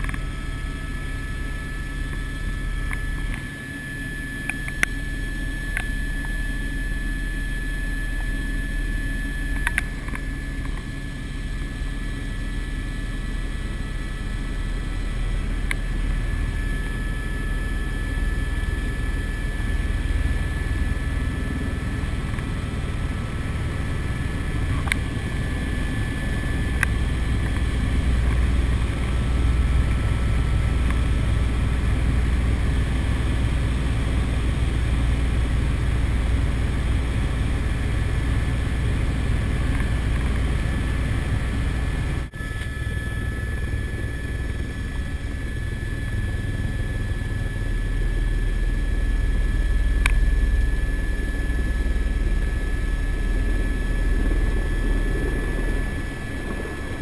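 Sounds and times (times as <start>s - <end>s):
helicopter rotor drone: 0.0s - 57.0s
helicopter turbine whine: 0.0s - 57.0s
click: 4.5s - 5.0s, 9.6s - 10.8s, 50.0s - 50.2s.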